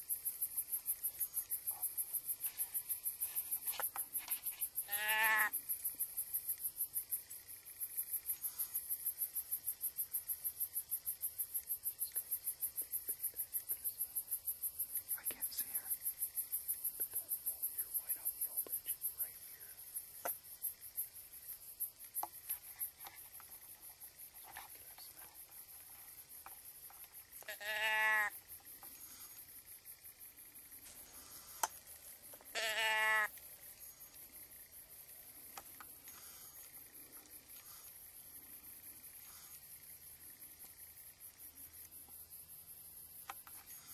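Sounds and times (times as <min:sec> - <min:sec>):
insects chirping: 0:00.0 - 0:43.9
deer bleats: 0:04.9 - 0:05.6, 0:27.5 - 0:28.4, 0:32.5 - 0:33.3.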